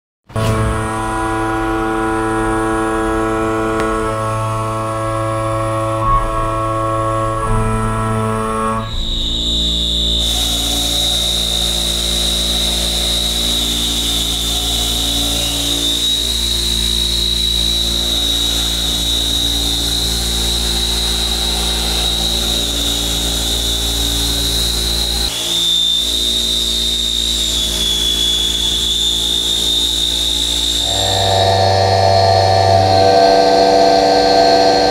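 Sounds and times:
milling machine cutting metal: 10.2s - 34.9s
low hum: 26.1s - 34.9s.

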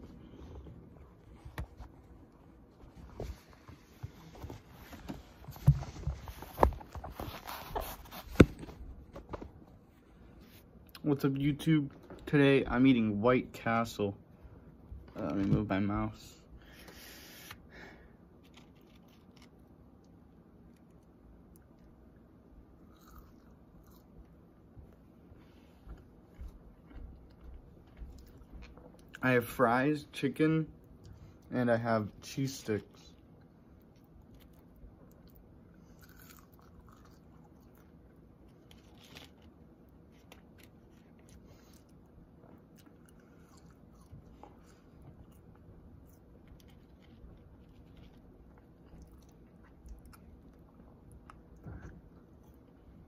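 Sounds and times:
low steady hum: 0.0s - 53.0s
food crackling and crunching: 18.4s - 21.8s, 22.9s - 24.4s, 33.8s - 52.7s
faint biting and chewing: 18.4s - 25.0s, 25.8s - 29.2s, 33.1s - 53.0s.

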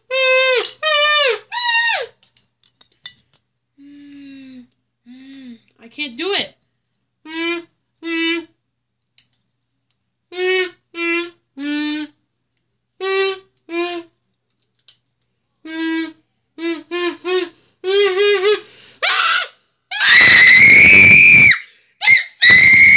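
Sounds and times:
kazoo buzzing: 0.0s - 2.2s, 7.2s - 8.6s, 10.3s - 12.2s, 13.0s - 14.2s, 15.6s - 22.9s
shrill scream: 0.1s - 2.2s, 18.4s - 22.9s.

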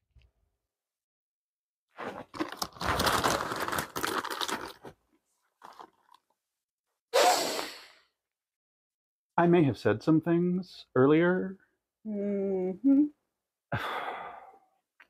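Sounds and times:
plastic snack bag crinkling: 2.0s - 5.0s, 5.6s - 6.3s.

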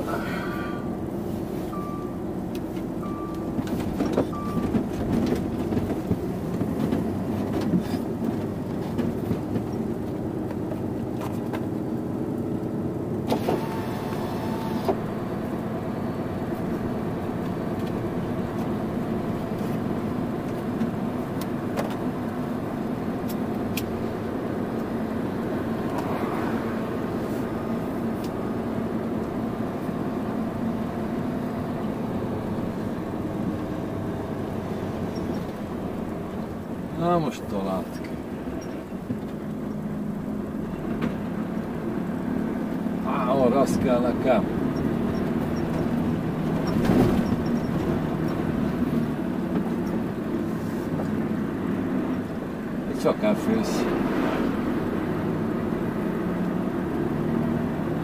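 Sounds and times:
truck diesel engine running: 0.0s - 58.0s.

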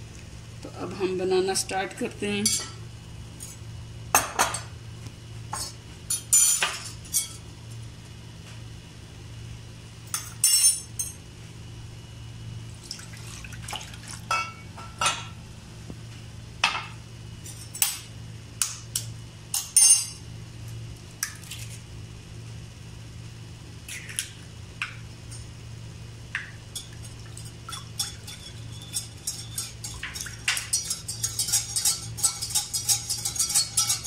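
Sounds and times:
steady low hum: 0.0s - 34.0s
glass dishes clinking: 4.2s - 4.7s, 10.2s - 11.2s, 14.3s - 15.3s, 19.6s - 20.2s.

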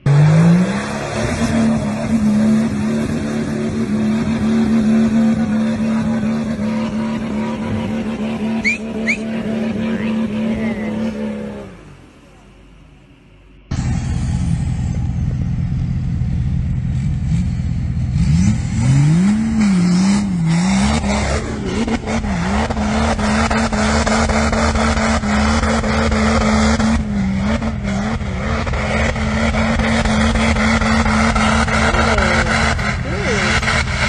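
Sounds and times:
suv engine revving: 0.0s - 12.2s, 13.7s - 34.0s
tyres spinning in snow and mud: 19.0s - 34.0s.

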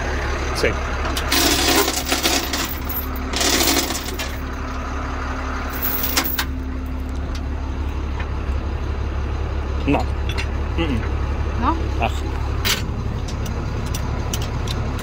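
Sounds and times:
tow truck engine idling: 0.0s - 15.0s
metal chains rattling and clanking: 1.2s - 4.6s, 5.7s - 6.6s.

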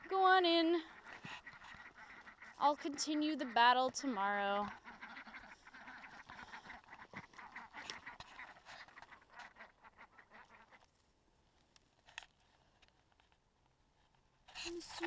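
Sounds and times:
ducks quacking: 0.0s - 10.9s.

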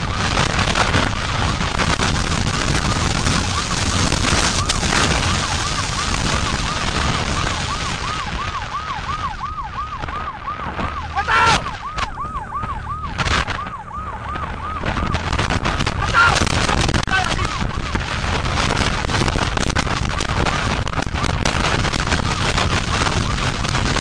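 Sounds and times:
police siren yelping: 0.0s - 24.0s
road and wind noise: 0.0s - 24.0s
short loud siren bursts: 2.6s - 19.0s.

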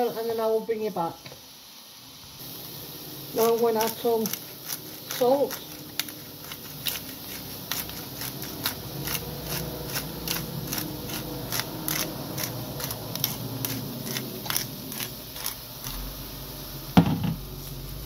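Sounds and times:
vegetables sizzling in pan: 0.0s - 18.0s
sharp crackles and pops: 3.3s - 16.0s.

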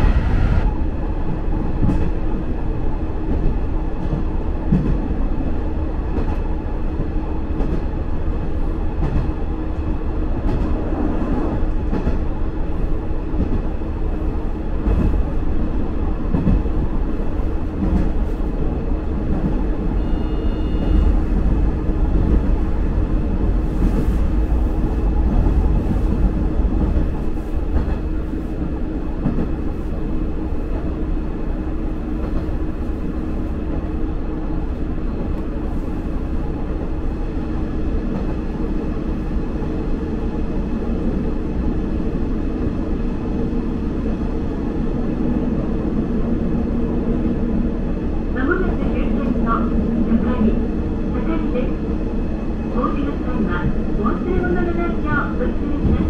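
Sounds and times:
railcar engine and wheels rumbling: 0.0s - 56.0s
brief high tone: 20.0s - 21.1s.

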